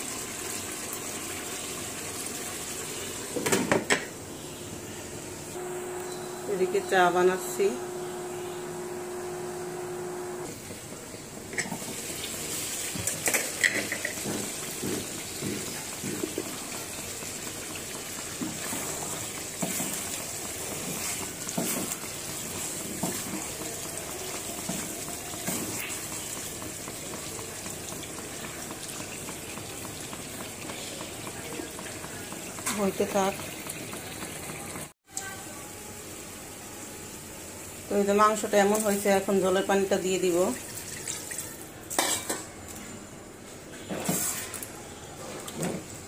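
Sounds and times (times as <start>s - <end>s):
milk tea boiling in pot: 0.0s - 3.8s, 5.6s - 35.9s
curry simmering: 7.4s - 35.0s.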